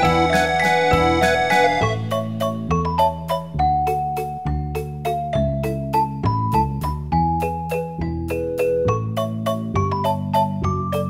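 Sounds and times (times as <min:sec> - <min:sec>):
sustained low chords: 0:00.0 - 0:02.7
melody of short notes: 0:00.0 - 0:04.4.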